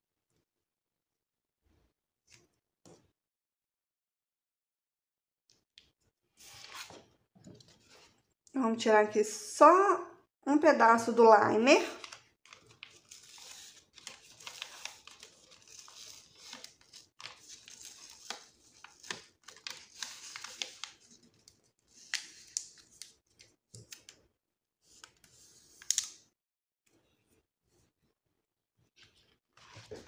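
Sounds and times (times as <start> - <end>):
backing liner peeling and crinkling: 12.0 - 21.4.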